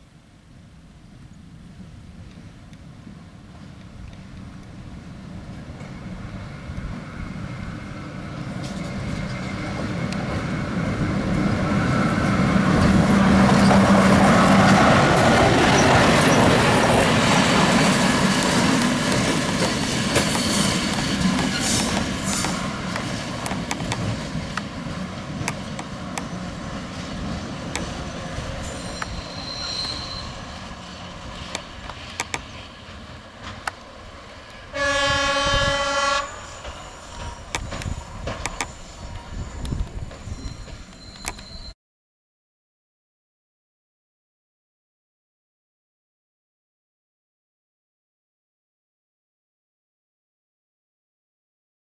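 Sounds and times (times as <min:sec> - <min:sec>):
wheels clicking over rail joints: 0:14.6 - 0:30.0, 0:31.4 - 0:34.6, 0:36.6 - 0:41.6
rail horn blast: 0:34.5 - 0:37.4.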